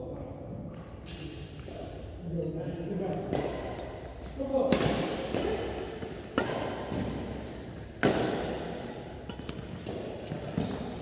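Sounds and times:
racket hitting shuttlecock: 0:03.1 - 0:11.0
short high squeak: 0:07.4 - 0:08.0.

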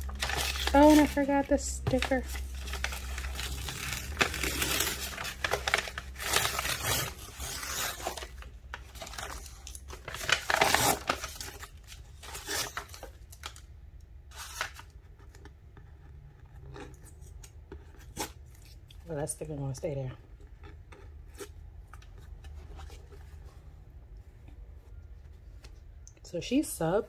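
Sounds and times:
paper handling: 0:00.0 - 0:13.6
paper ripping: 0:01.9 - 0:13.1, 0:14.3 - 0:14.9.

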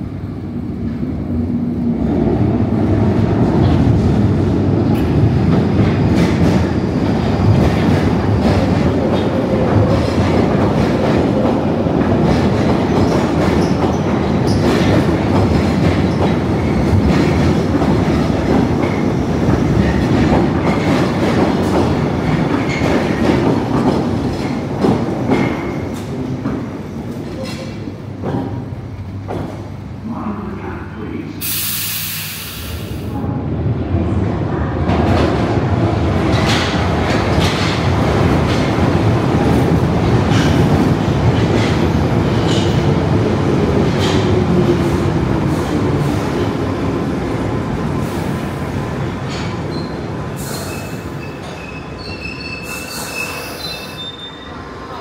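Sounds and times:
train wheel and track rumble: 0:00.0 - 0:55.0
short hiss: 0:31.4 - 0:33.1
high wheel squeals: 0:49.7 - 0:54.6.

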